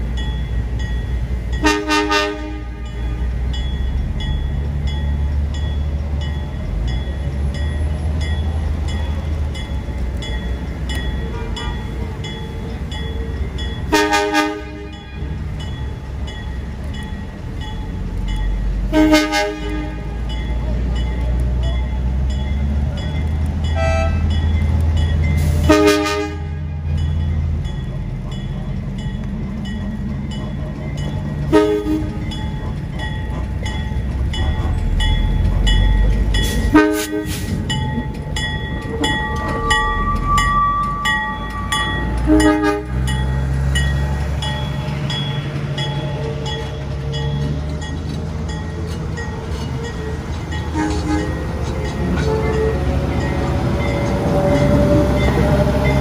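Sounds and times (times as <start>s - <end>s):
diesel locomotive engine rumbling: 0.0s - 56.0s
locomotive horn toots: 1.6s - 3.4s, 11.2s - 11.9s, 13.8s - 15.4s, 18.9s - 20.2s, 23.7s - 24.4s, 25.4s - 27.0s, 31.5s - 32.4s, 36.5s - 37.7s, 38.9s - 43.2s, 50.6s - 53.2s
high wheel squeal: 34.3s - 43.3s.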